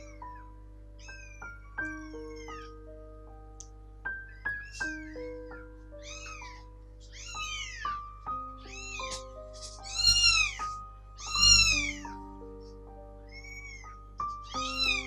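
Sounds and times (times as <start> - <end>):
background music with held notes: 0.0 - 15.0
kitten meowing: 1.0 - 2.8, 4.3 - 12.2, 13.3 - 15.0.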